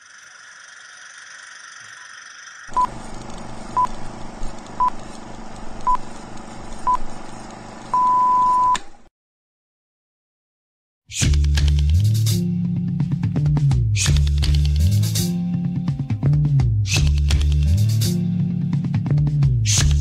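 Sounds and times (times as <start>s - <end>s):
film projector clattering: 0.4s - 7.9s.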